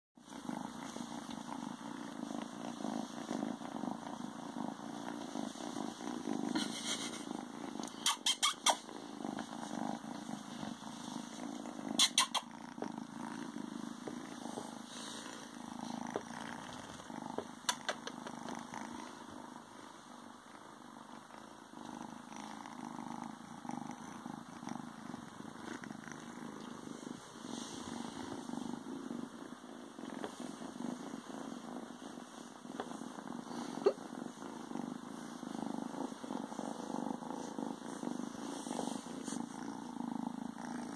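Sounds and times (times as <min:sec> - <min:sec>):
kitten purring: 0:00.2 - 0:40.9.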